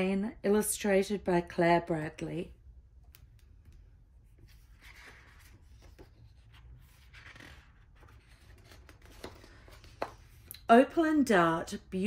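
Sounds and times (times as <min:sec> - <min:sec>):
book pages turning: 0:03.2 - 0:10.7.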